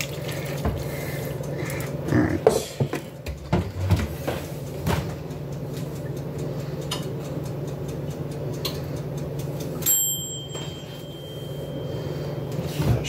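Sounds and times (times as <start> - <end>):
toaster oven humming: 0.0 - 13.0
mechanical timer ticking: 0.3 - 2.3, 5.2 - 12.7.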